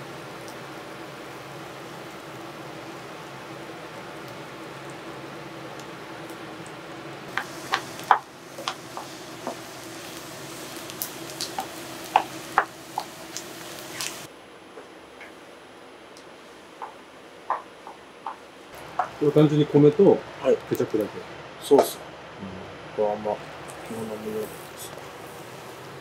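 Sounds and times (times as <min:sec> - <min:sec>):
steady background hum: 0:00.0 - 0:26.0
utensils tapping pan and bowl: 0:11.4 - 0:13.2.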